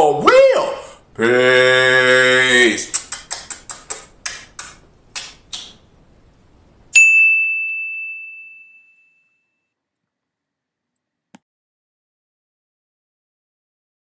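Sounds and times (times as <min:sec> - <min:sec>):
bell-like ding: 0:07.0 - 0:09.6.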